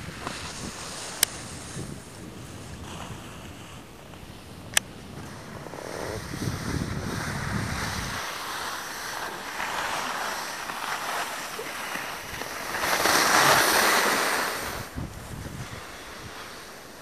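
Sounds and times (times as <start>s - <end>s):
wind rushing on microphone: 0.0s - 8.6s, 12.2s - 17.0s
skis scraping over snow: 0.0s - 17.0s.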